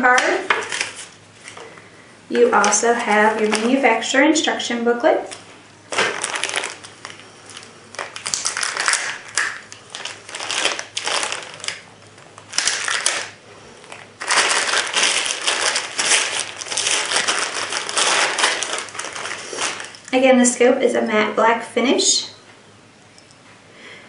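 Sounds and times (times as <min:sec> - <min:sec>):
plastic bag crinkling: 0:00.0 - 0:01.7, 0:02.3 - 0:04.4, 0:05.2 - 0:20.3.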